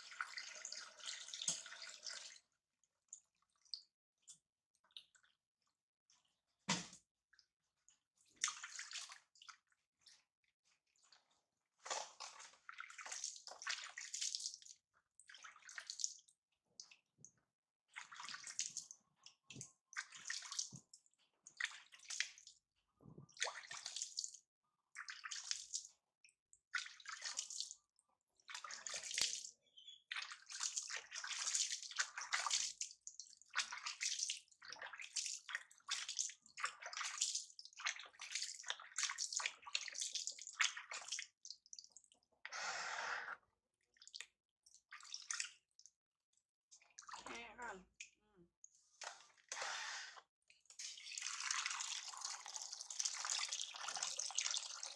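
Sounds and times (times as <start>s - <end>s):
water splashing and pouring: 0.0s - 2.5s, 8.2s - 17.0s, 17.9s - 26.0s, 26.7s - 27.8s, 28.4s - 42.2s, 43.9s - 45.7s, 46.8s - 47.5s, 48.8s - 54.9s.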